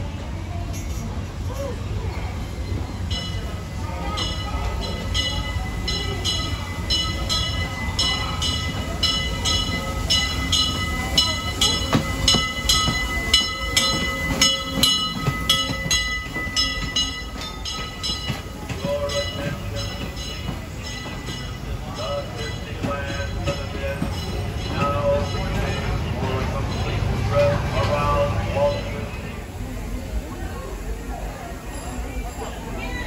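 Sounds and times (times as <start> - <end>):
low rumble of train: 0.0 - 33.0
steam locomotive bell ringing: 0.6 - 33.0.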